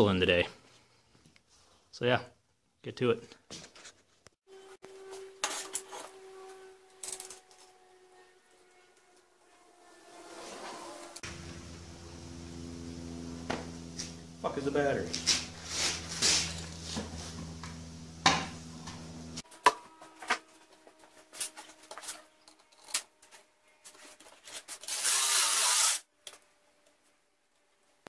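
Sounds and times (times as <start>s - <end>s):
steady machine hum: 11.0s - 19.5s.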